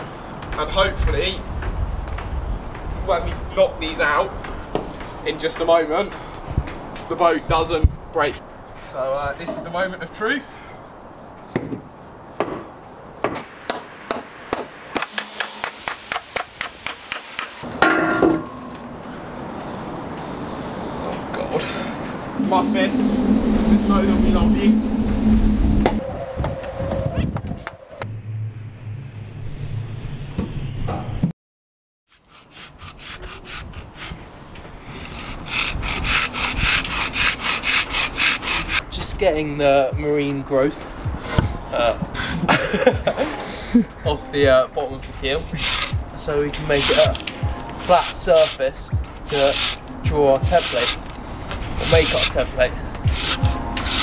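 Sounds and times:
hammer knocking wooden chocks: 11.5s - 18.5s
louder longer sound: 22.3s - 30.4s
hand scraper scraping hull: 32.1s - 34.3s, 34.9s - 38.9s, 46.6s - 47.2s, 47.8s - 48.7s, 49.3s - 49.8s, 50.5s - 51.0s, 51.8s - 52.4s, 53.1s - 54.0s.

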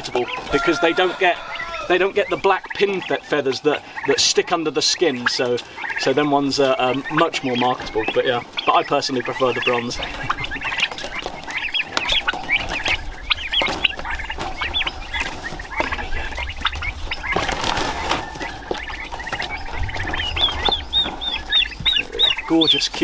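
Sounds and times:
turkey poults peeping: 0.0s - 23.0s
rustle in wire cage: 4.6s - 23.0s.

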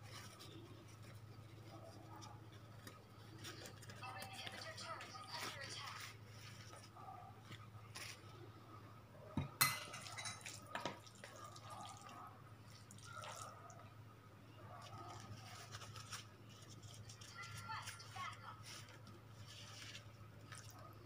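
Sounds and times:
wrapper sheet rustling: 0.0s - 8.4s, 14.8s - 21.0s
crockery clinking: 9.4s - 11.0s.

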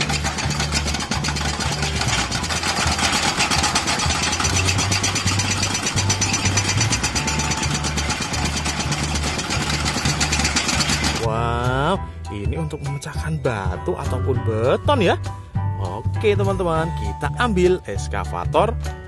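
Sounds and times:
excavator engines running: 0.0s - 11.3s
hydraulic breakers hammering rock: 0.0s - 11.3s.

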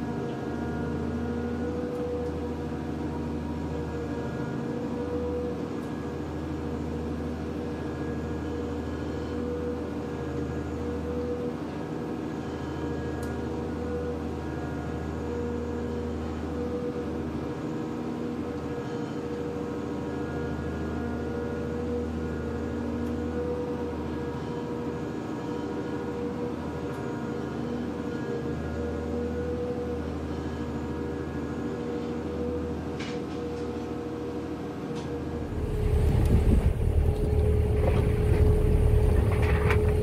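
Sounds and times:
constant machine whine: 0.0s - 40.0s
machinery deep hum: 33.5s - 40.0s.

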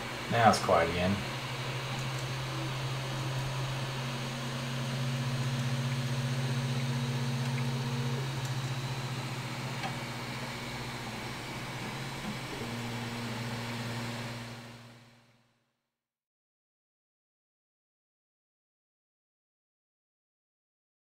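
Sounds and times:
stepper motors humming: 0.0s - 15.2s
cooling fans whirring: 0.0s - 15.4s.

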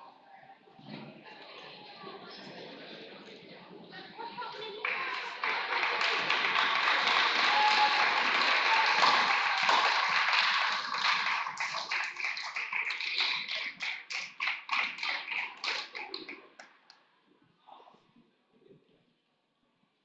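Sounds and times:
crowd applauding: 4.8s - 16.7s.

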